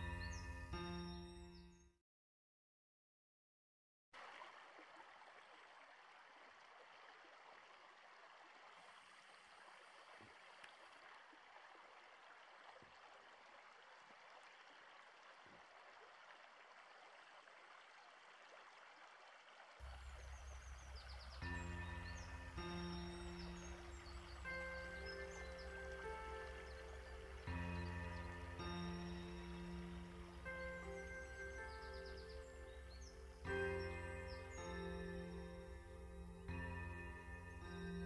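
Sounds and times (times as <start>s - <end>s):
music: 0.0s - 1.9s, 20.5s - 38.0s
stream flowing: 4.2s - 38.0s.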